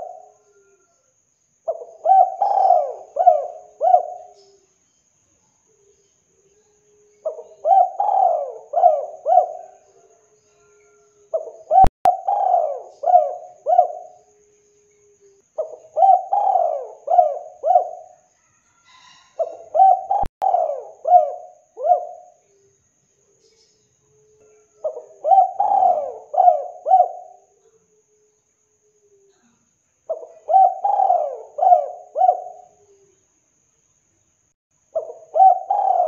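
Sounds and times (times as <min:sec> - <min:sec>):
dove cooing: 0:00.0 - 0:00.9, 0:01.7 - 0:04.6, 0:07.0 - 0:18.3, 0:18.9 - 0:22.7, 0:24.1 - 0:28.2, 0:30.1 - 0:33.2, 0:35.0 - 0:36.0.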